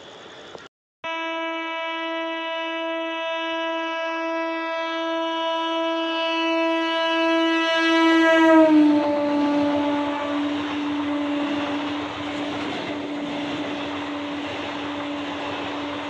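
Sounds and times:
train horn blast: 1.0s - 16.0s
train coaches rushing by: 9.2s - 16.0s.

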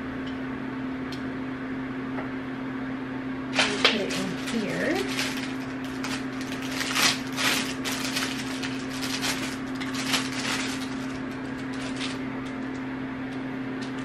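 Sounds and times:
low steady hum: 0.0s - 14.0s
packaging rustling and crackling: 3.6s - 12.8s.

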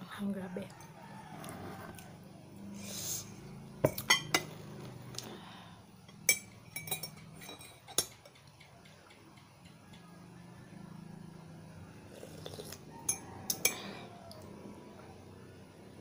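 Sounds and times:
spoon clinking against a mug: 3.8s - 4.5s, 6.1s - 8.7s, 13.0s - 13.9s.

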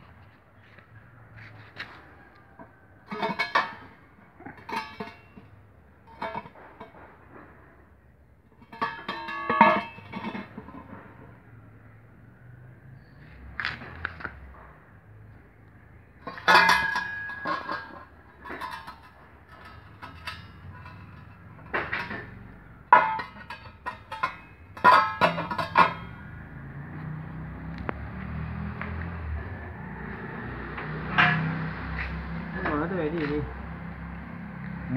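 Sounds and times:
metal clinking and clanking: 2.4s - 7.7s, 8.5s - 11.6s, 16.1s - 26.9s, 30.8s - 32.8s.

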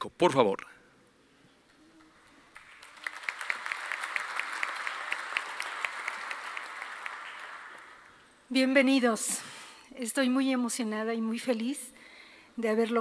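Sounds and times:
audience applauding: 1.9s - 8.4s.

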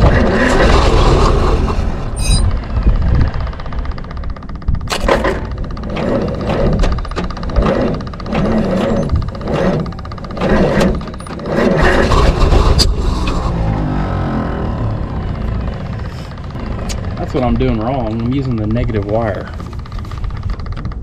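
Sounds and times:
truck engine running unevenly: 0.0s - 21.0s.

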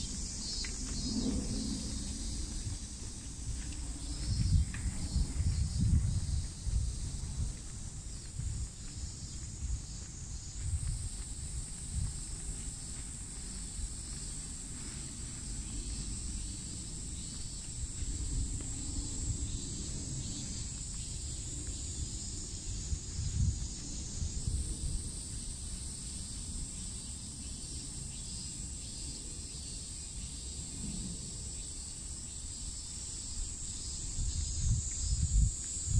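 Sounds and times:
low rumble: 0.0s - 8.7s
insects droning: 0.0s - 35.9s.

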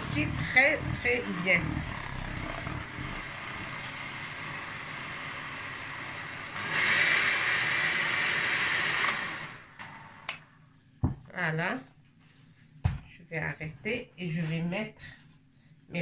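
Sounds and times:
electric hand mixer running: 0.0s - 10.4s.

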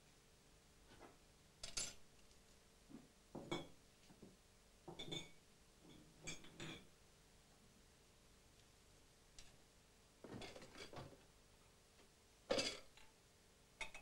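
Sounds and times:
plates and cutlery clinking: 4.9s - 6.9s, 12.5s - 13.0s.

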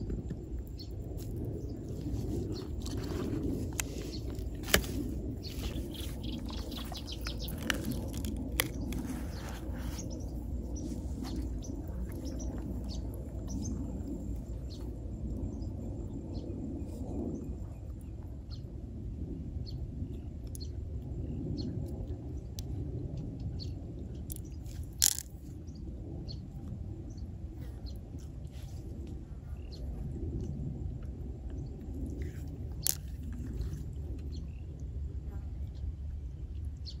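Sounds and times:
low outdoor rumble: 0.0s - 37.0s
birds chirping: 1.6s - 14.9s.

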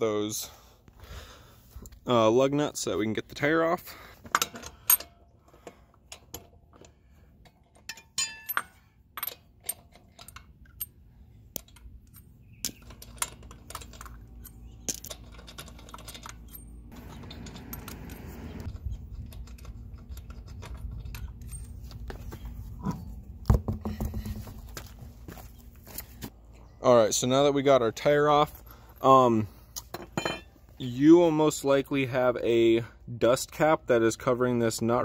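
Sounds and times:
metallic clicks of lug nuts: 4.2s - 10.9s, 11.5s - 21.8s.

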